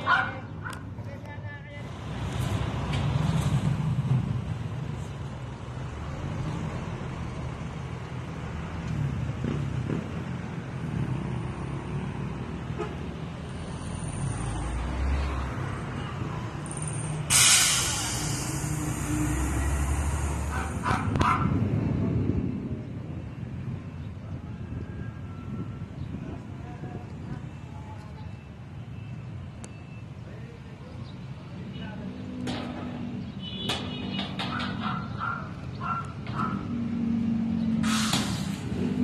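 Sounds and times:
loud hiss: 0:17.3 - 0:20.5, 0:37.8 - 0:38.7.

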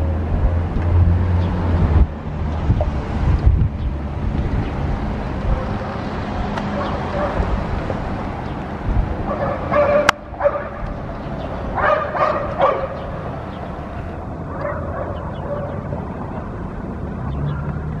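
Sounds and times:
dog barking: 0:06.7 - 0:07.5, 0:09.3 - 0:10.8, 0:11.8 - 0:13.2, 0:14.5 - 0:15.8.

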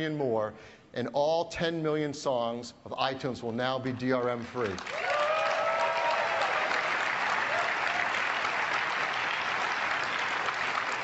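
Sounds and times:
audience applauding: 0:04.4 - 0:11.0
person cheering: 0:04.9 - 0:06.9.

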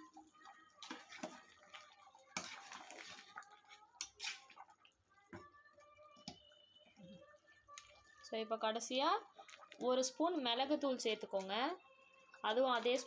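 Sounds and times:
curry sloshing and squelching: 0:00.8 - 0:04.8.

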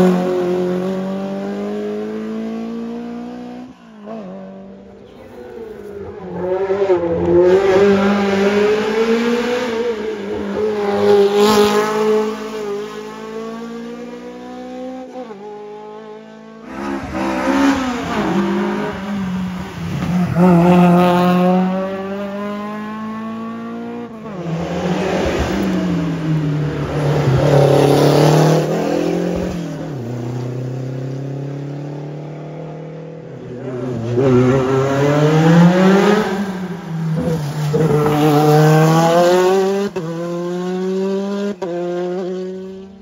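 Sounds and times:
racing car engines revving: 0:00.0 - 0:43.0.

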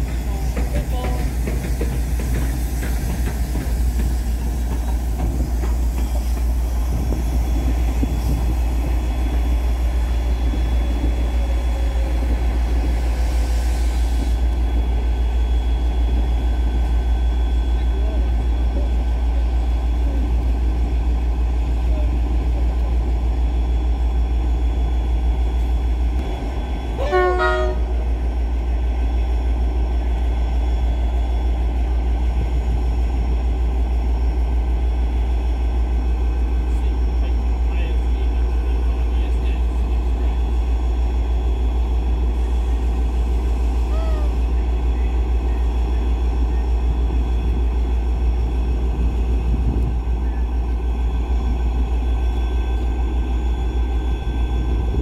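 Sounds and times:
steam hissing: 0:00.0 - 0:09.2, 0:12.0 - 0:15.1
train horn blast: 0:27.0 - 0:28.0.

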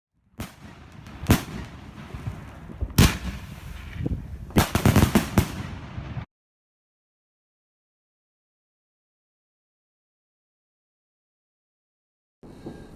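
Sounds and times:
fireworks banging: 0:00.4 - 0:06.3, 0:12.4 - 0:12.9
hissing crackle of fireworks: 0:00.4 - 0:06.3, 0:12.4 - 0:12.9.

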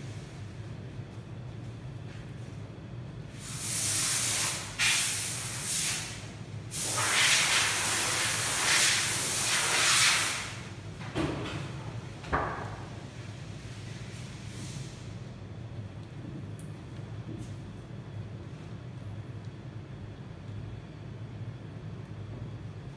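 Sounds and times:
loud hissing: 0:03.4 - 0:10.6
steady low hum: 0:10.6 - 0:22.9.

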